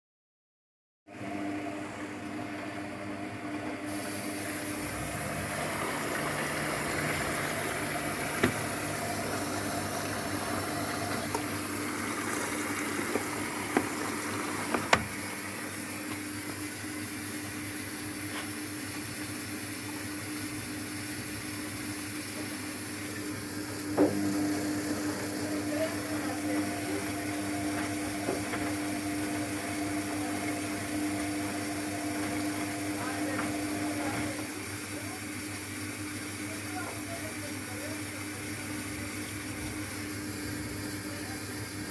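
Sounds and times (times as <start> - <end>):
washing machine motor humming: 1.1 - 41.9
water sloshing in drum: 4.3 - 15.4.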